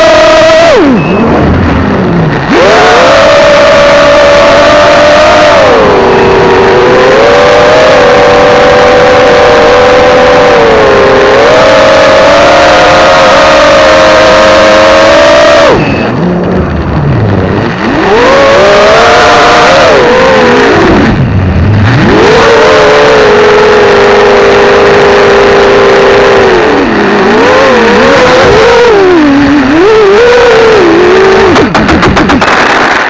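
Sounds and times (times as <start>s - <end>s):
drone propellers whining: 0.0s - 33.0s.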